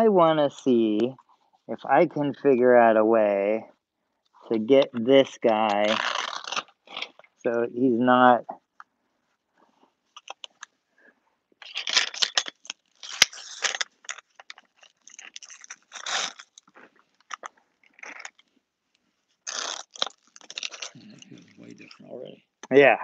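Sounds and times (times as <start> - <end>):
hook-and-loop fastener ripping: 4.8 - 7.4, 10.1 - 10.7, 11.6 - 18.6, 19.4 - 22.0.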